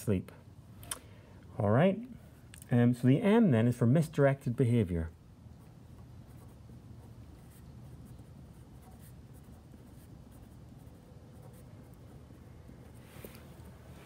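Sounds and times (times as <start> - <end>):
low steady hum: 0.0 - 14.0
pen scratching on paper: 5.6 - 13.0.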